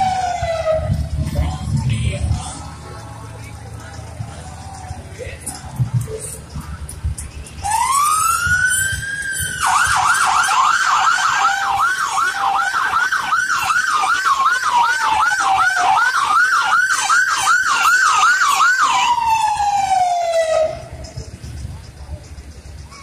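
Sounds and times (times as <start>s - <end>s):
fire truck siren: 0.0s - 1.8s, 7.6s - 21.2s.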